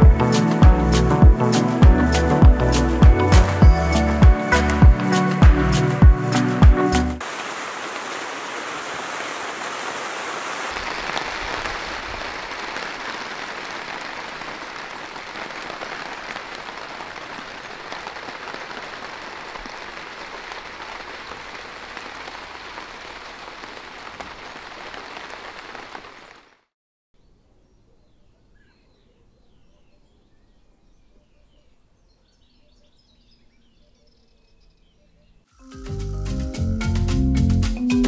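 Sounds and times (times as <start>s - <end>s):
steady rain falling: 0.0s - 26.7s.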